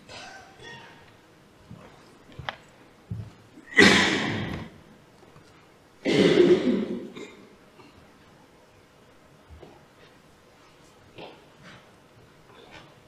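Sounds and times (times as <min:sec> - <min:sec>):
person coughing: 0:03.7 - 0:04.5, 0:06.0 - 0:07.5.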